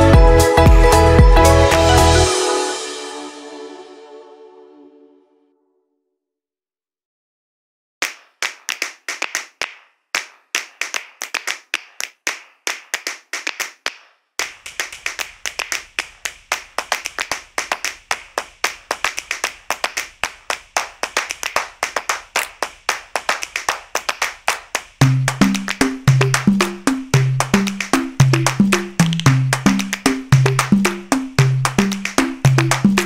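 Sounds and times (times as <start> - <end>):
hand claps: 8.0 - 33.0.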